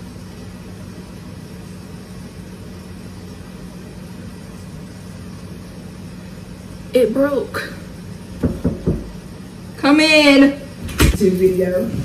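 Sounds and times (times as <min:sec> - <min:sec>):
room hum with hiss: 0:00.0 - 0:12.0.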